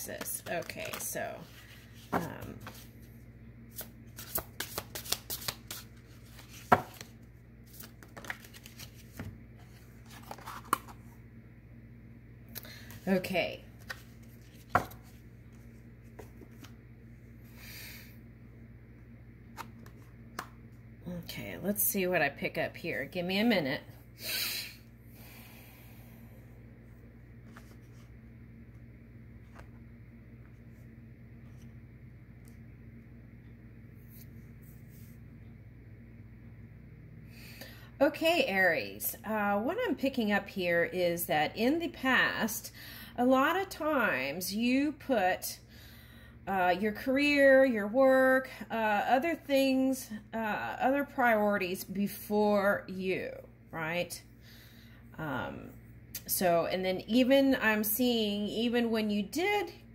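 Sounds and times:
steady low hum: 0.0 - 59.9
cards shuffling: 0.1 - 3.0, 3.7 - 11.0, 13.8 - 16.8, 27.4 - 28.1.

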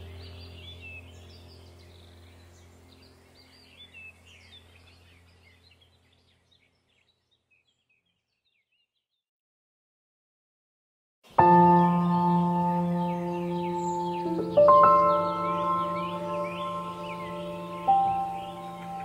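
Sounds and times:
low steady hum: 0.0 - 7.4, 11.3 - 19.0
birds chirping: 0.0 - 9.2, 11.3 - 19.0.

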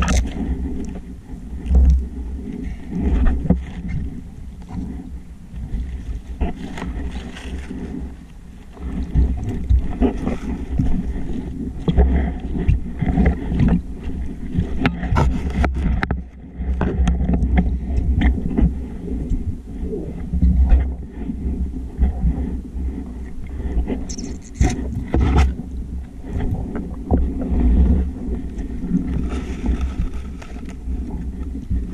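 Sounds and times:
muffled underwater rumble: 0.0 - 31.9.

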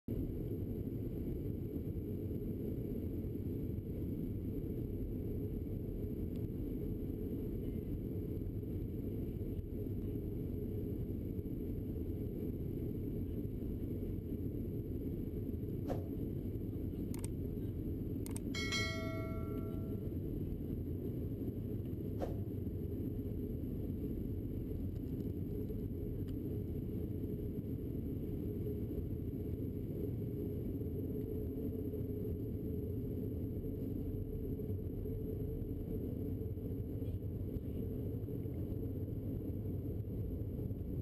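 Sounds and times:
jet engines and cabin rumble: 0.1 - 41.0
sharp clicks: 18.3 - 18.5
bright bell chime: 18.6 - 20.0.

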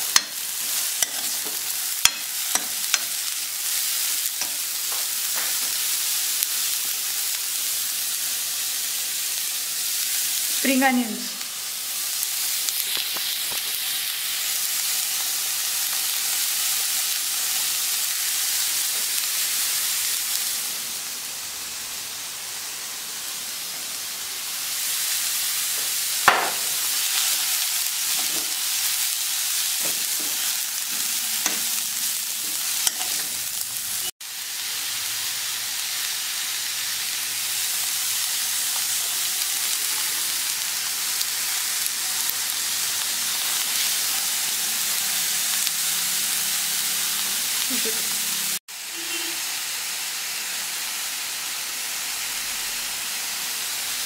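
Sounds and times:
food sizzling in wok: 0.0 - 54.0
metal spoon stirring: 0.1 - 3.1, 32.4 - 33.4.

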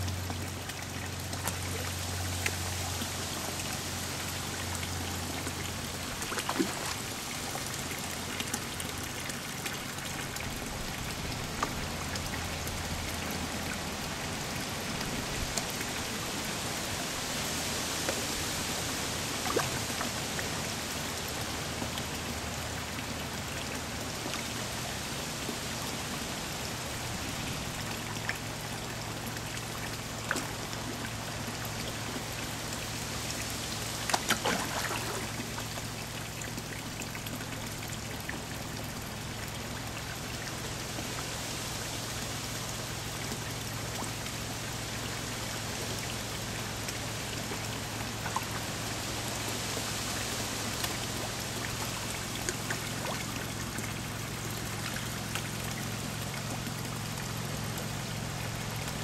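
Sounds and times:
low steady hum: 0.0 - 59.0
pond water trickling: 0.0 - 59.0
fish splashing at surface: 6.1 - 7.5, 34.1 - 35.7.

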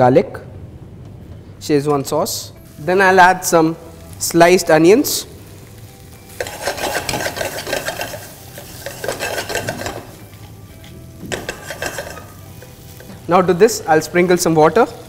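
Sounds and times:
onions sizzling in oil: 2.6 - 15.0
spatula scraping wok: 6.3 - 13.2.

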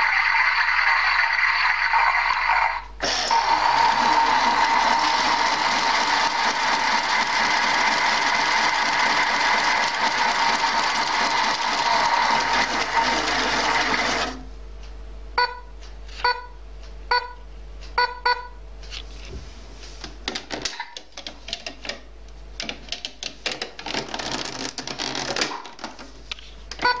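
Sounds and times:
short electronic beeps: 15.4 - 17.4, 18.0 - 18.6.

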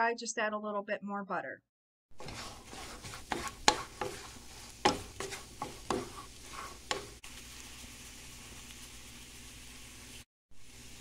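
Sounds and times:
wooden spoon scraping a frying pan: 2.2 - 9.2
eggs sizzling in butter: 2.2 - 11.0.

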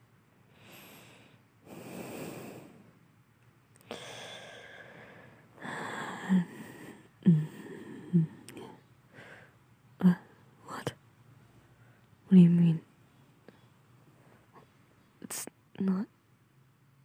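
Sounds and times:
person breathing and sighing: 0.5 - 2.9, 3.8 - 9.6.

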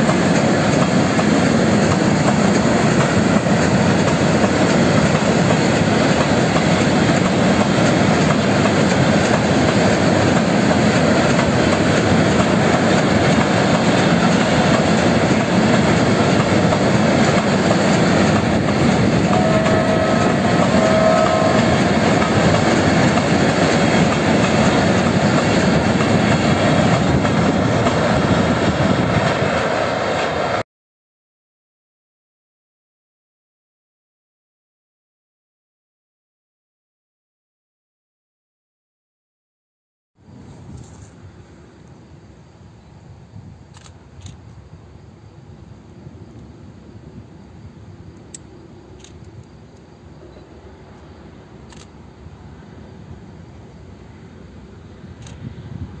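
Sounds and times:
clickety-clack over rail joints: 0.0 - 30.5
train wheels rumbling on rails: 0.0 - 30.6, 40.2 - 42.1, 43.4 - 56.0.

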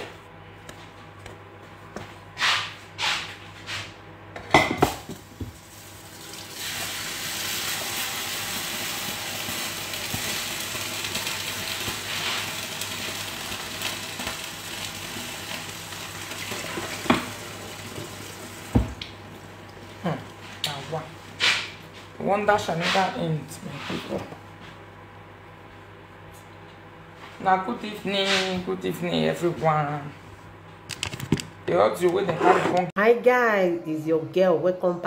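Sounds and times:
kitchenware clattering: 4.4 - 5.2.

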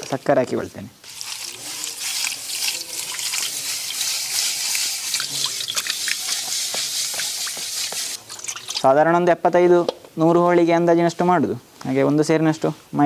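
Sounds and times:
hand swirling water: 1.0 - 8.9
water pouring into metal bowl: 1.0 - 9.0.

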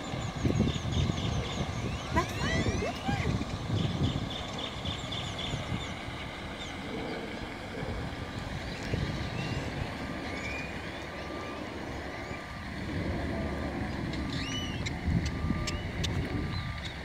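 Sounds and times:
vehicle engine rumble: 0.0 - 17.0
bird chirps: 9.2 - 12.5, 14.1 - 17.0
reversing alarm beeping: 10.1 - 16.9.

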